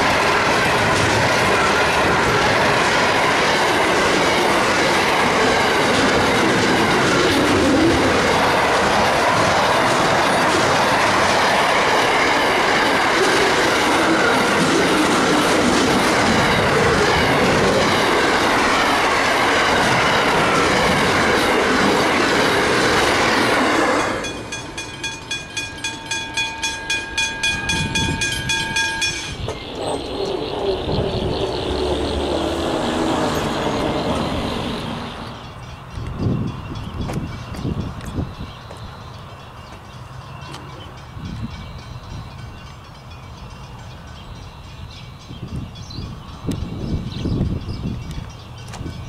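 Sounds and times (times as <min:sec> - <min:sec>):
train wheels clacking: 0:00.0 - 0:49.0
train wheels rumbling on rail: 0:00.0 - 0:49.0
wheel squeal: 0:23.7 - 0:37.7.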